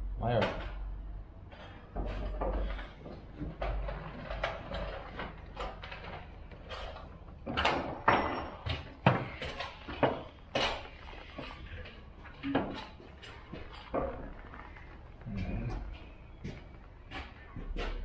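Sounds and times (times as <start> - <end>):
tools and metal parts knocking: 1.5 - 14.7.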